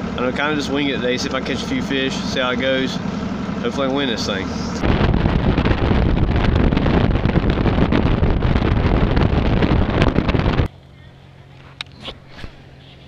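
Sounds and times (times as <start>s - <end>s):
outboard motor: 0.0s - 13.0s
wind buffeting microphone: 4.4s - 10.7s.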